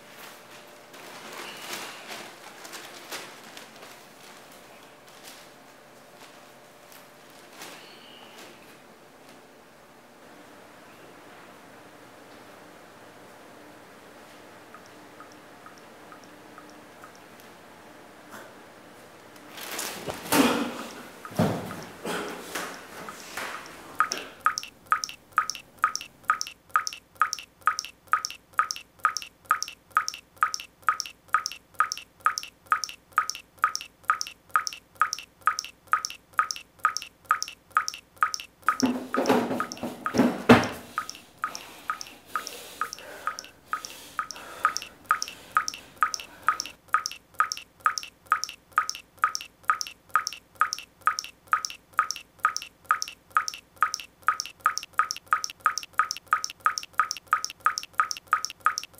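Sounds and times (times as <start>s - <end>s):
water dripping into a steel sink: 24.0s - 40.2s, 41.0s - 58.9s.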